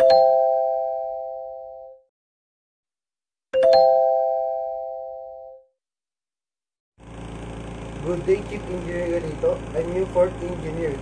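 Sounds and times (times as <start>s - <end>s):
doorbell chime: 0.0s - 2.0s, 3.6s - 5.7s.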